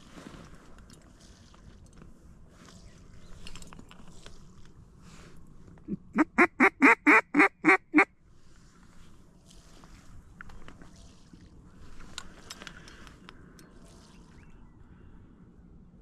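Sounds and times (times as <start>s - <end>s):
duck call quacks: 5.9s - 8.1s.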